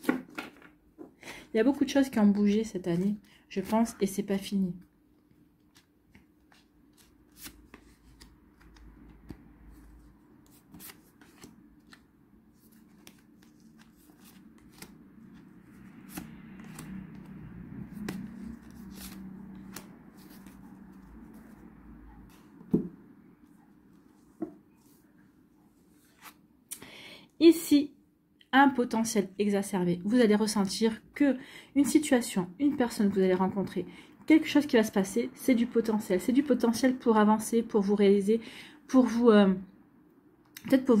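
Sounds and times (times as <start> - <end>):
cards being shuffled: 5.6 - 21.6.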